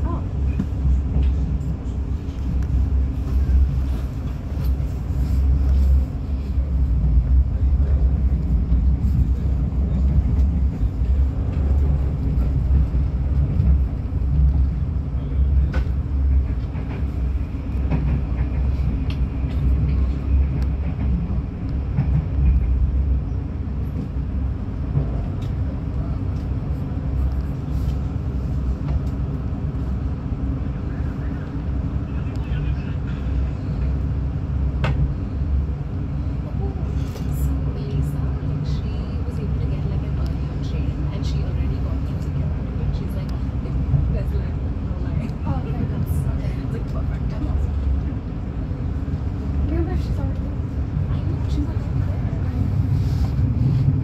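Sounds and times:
train rumbling: 0.0 - 54.0.

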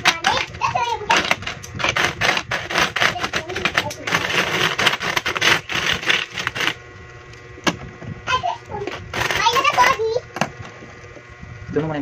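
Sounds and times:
coins clinking and scraping: 1.4 - 6.8.

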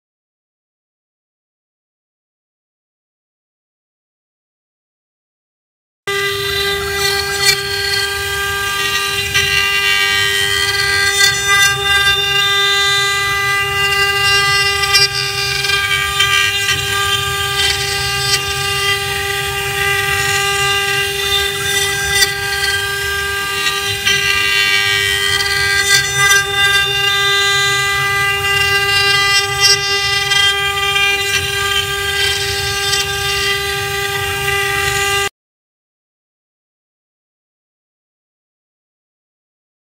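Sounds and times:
bit rasping through wood: 6.1 - 35.3
router spindle high whine: 6.1 - 35.3.

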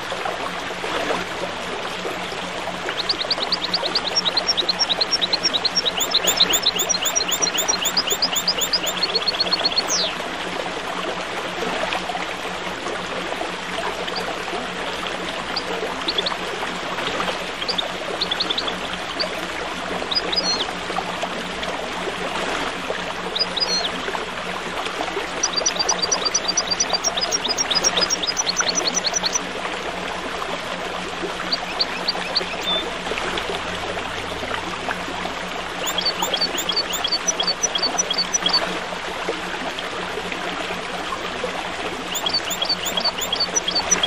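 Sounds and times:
flowing water: 0.0 - 44.0
small songbirds chirping: 3.0 - 10.2, 17.6 - 19.3, 25.4 - 29.4, 31.5 - 32.8, 35.8 - 38.6, 42.1 - 44.0.

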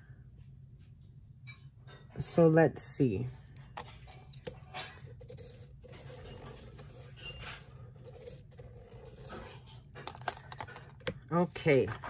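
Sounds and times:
pen scratching on paper: 5.2 - 9.7.

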